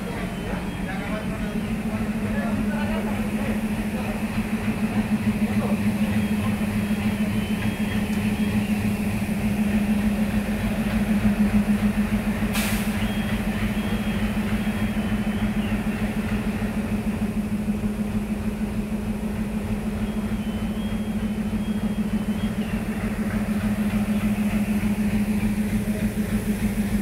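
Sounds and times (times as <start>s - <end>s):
diesel locomotive engine idling: 0.0s - 27.0s
short hiss: 12.5s - 13.0s.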